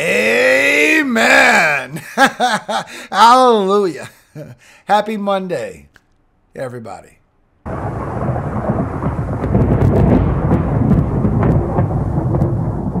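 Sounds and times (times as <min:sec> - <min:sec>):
steady rain hiss: 0:00.0 - 0:05.8, 0:07.6 - 0:13.0
thunder rumbling with crackles: 0:07.7 - 0:13.0.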